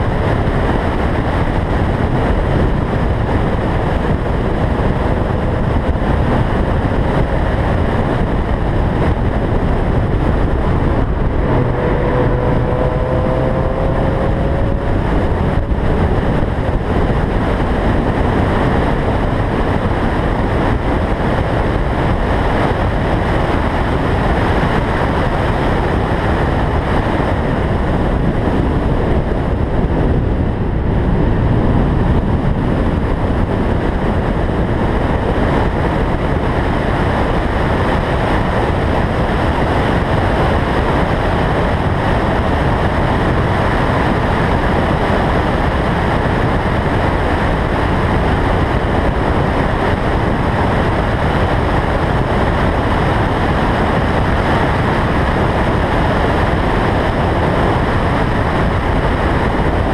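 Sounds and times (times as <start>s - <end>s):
car engine and tyre noise: 0.0s - 59.9s
wind rush over microphone: 0.0s - 59.9s.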